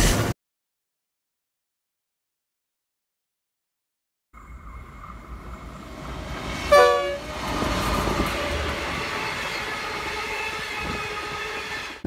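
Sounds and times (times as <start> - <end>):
train wheels on rails: 4.4 - 12.0
locomotive horn blast: 6.6 - 7.4.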